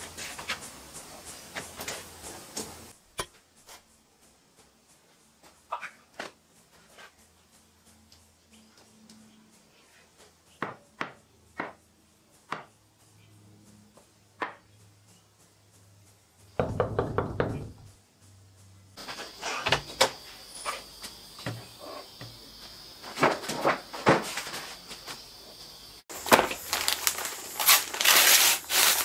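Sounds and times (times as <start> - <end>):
wooden slats knocking on workbench: 16.6 - 17.8.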